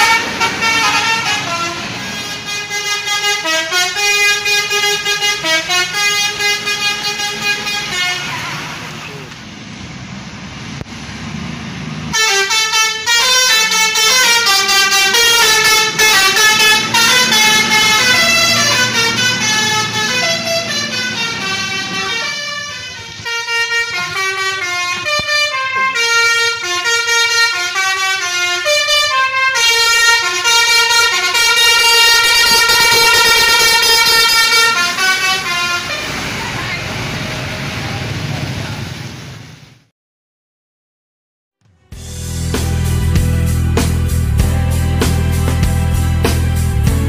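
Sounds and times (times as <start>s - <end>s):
bus musical horn melody: 0.0s - 9.2s, 12.1s - 37.6s.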